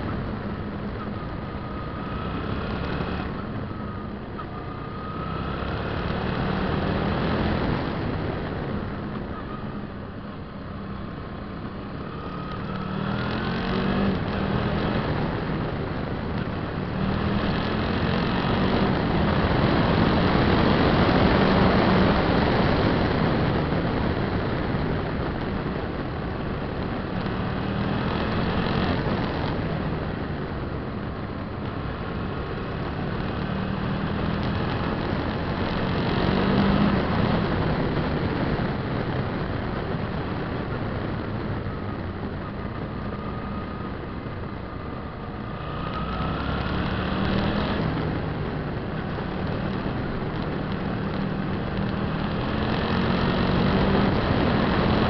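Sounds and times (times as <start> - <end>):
motorcycle engine running: 0.0 - 55.0
wind and road noise: 0.0 - 55.0.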